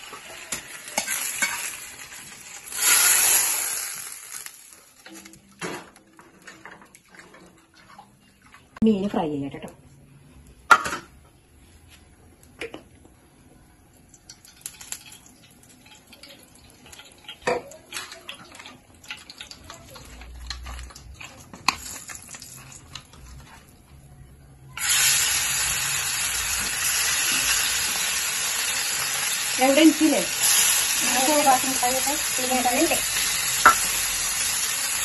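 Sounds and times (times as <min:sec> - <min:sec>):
fish sizzling in hot oil: 0:00.0 - 0:05.0, 0:14.3 - 0:17.5, 0:24.8 - 0:35.0.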